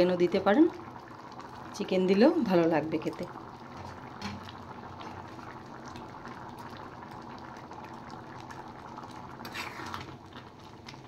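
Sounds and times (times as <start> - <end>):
curry bubbling in a pan: 0.0 - 11.0
ladle going into pan: 8.4 - 11.0.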